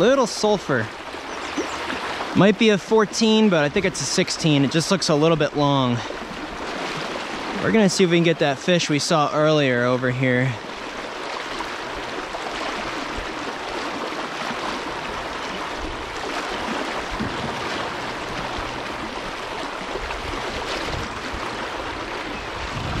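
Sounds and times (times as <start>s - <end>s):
river water rushing: 0.0s - 23.0s
low rumble: 17.1s - 19.6s.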